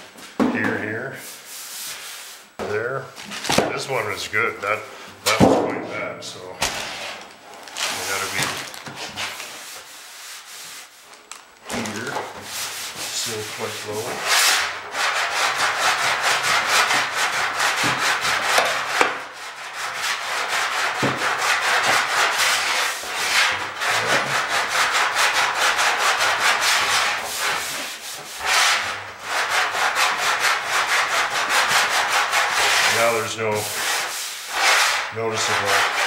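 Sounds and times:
hand-sanding sheet steel: 0:01.2 - 0:02.5, 0:07.9 - 0:11.1, 0:11.8 - 0:36.0.

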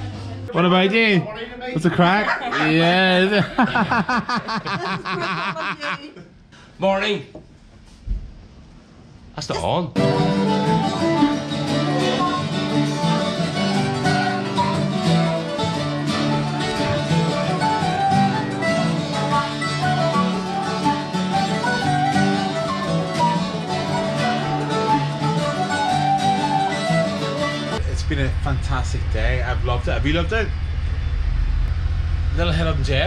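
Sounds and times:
folk string instruments playing: 0:10.0 - 0:27.9.

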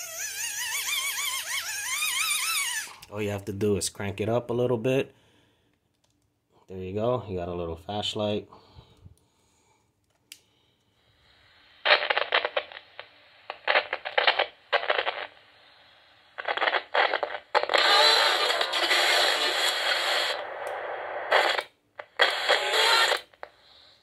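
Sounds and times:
radio static: 0:11.8 - 0:15.4, 0:16.4 - 0:23.3.

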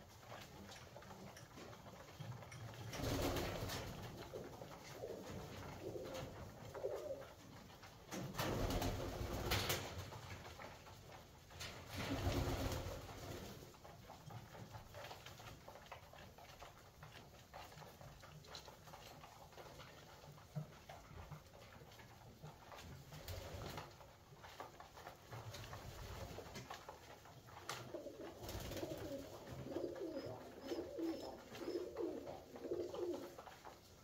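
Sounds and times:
birds pecking grain: 0:00.0 - 0:34.0
pigeons cooing: 0:02.8 - 0:07.7, 0:27.6 - 0:33.8.

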